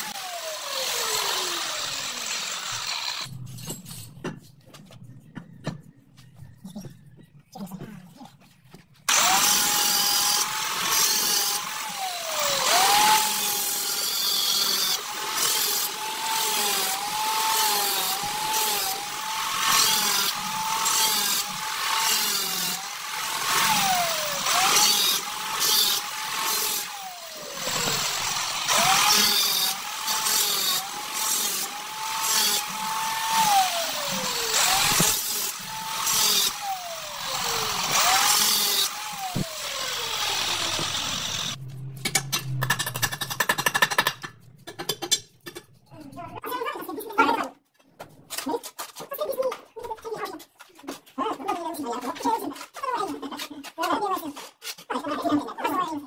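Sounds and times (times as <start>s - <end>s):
power tool cutting tile: 0.0s - 3.3s, 9.1s - 44.2s.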